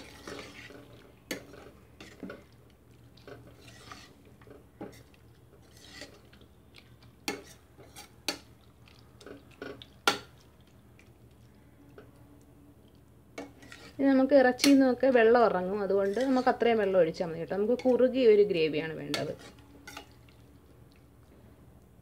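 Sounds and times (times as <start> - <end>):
metal spoon scraping a pot: 0.0 - 2.4, 3.2 - 5.0, 5.6 - 6.3, 7.2 - 8.4, 13.4 - 14.8, 15.8 - 17.0, 19.0 - 20.2.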